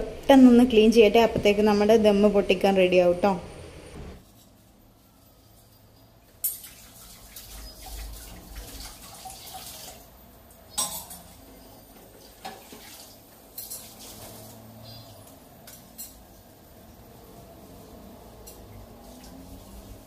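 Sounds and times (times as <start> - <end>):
dishes and utensils clattering: 5.4 - 10.0, 10.7 - 14.6
tap water running: 6.3 - 14.8, 18.4 - 20.0.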